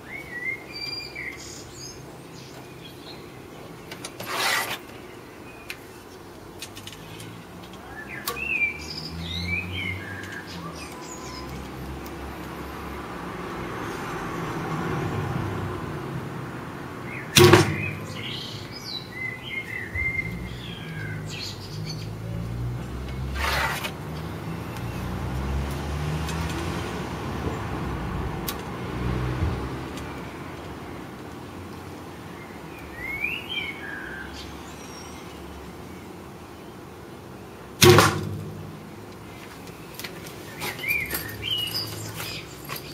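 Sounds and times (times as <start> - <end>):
birds chirping: 0.0 - 14.3, 17.0 - 26.8, 29.0 - 42.9.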